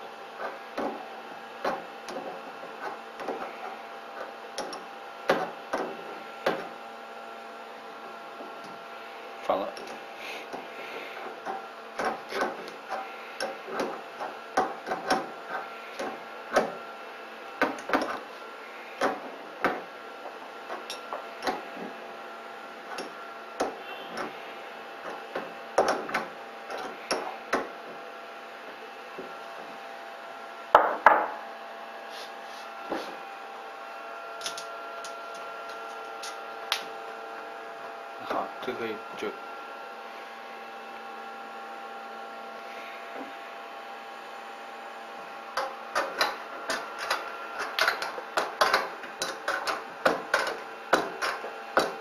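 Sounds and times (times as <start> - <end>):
steady electrical hum: 0.0 - 52.0.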